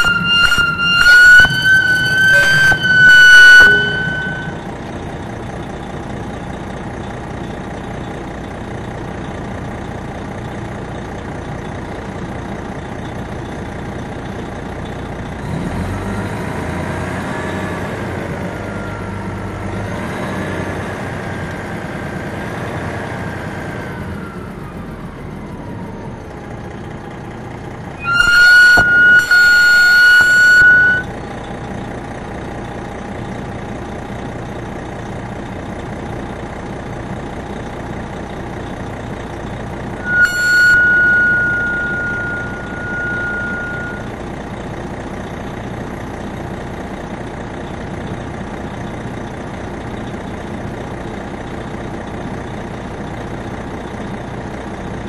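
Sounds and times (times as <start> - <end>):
high-pitched tone: 0.0 - 4.8, 28.0 - 31.1, 40.0 - 44.1
bus diesel engine running: 0.0 - 55.0.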